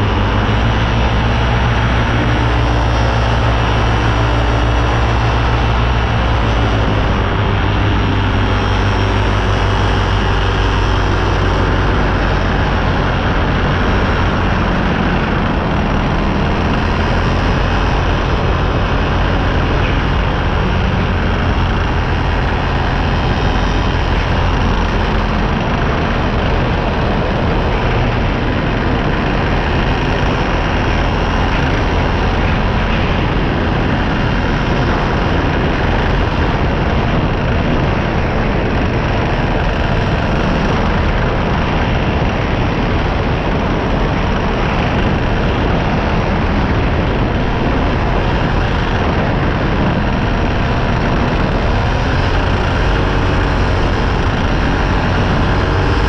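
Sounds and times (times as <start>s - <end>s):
paramotor engine and propeller: 0.0s - 56.0s.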